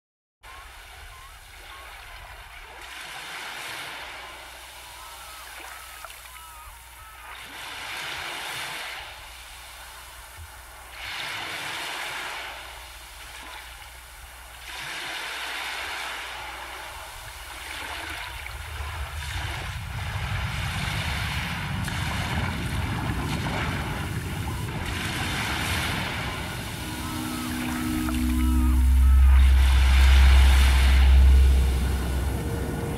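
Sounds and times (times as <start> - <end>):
sea waves washing in: 0.5 - 32.9
low rumble: 17.1 - 32.9.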